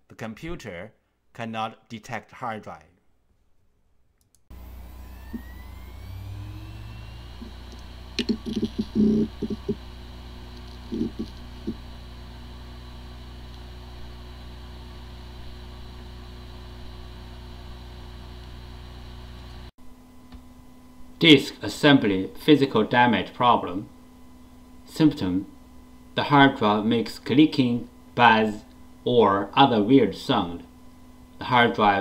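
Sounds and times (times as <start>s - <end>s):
hard drive spinning up: 4.5s - 19.7s
hard drive running hum: 4.5s - 32.0s
hard drive head ticks: 7.5s - 9.8s.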